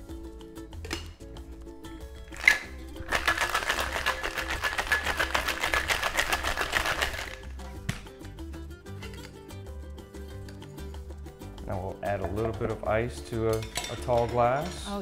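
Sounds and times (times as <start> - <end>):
background music: 0.0 - 15.0
ice rattling in cocktail shaker: 2.3 - 7.5.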